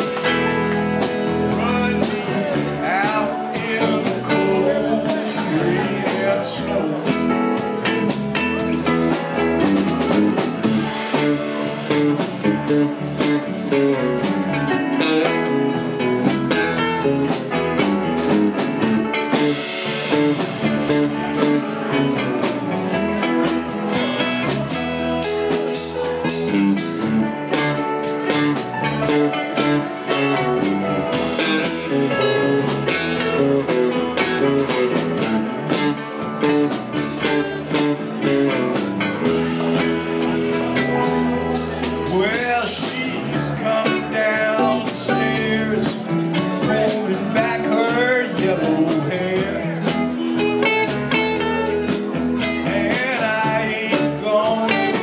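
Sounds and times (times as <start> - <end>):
drum kit: 0.0 - 55.0
electric guitars: 0.0 - 55.0
keyboard: 0.0 - 55.0.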